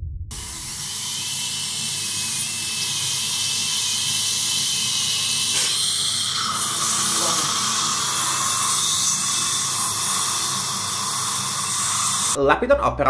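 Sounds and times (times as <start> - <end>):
lower whine: 0.0 - 5.3
dental drill whining: 0.3 - 12.4
hiss of air and water spray: 0.3 - 12.4.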